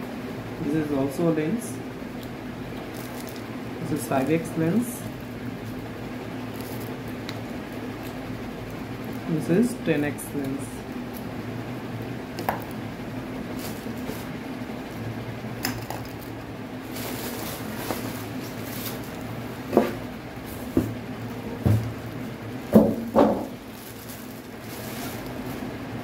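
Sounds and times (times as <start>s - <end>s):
plastic wrapping rustling: 2.8s - 3.5s, 5.2s - 9.3s, 13.4s - 15.0s, 15.6s - 26.0s
polystyrene box moved: 16.9s - 19.2s, 23.0s - 25.6s.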